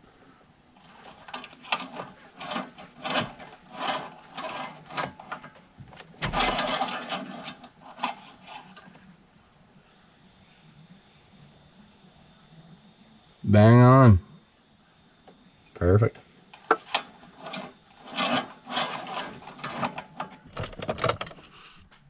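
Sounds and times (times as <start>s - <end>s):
dipstick clicking and scraping: 0.8s - 9.0s, 16.5s - 21.6s.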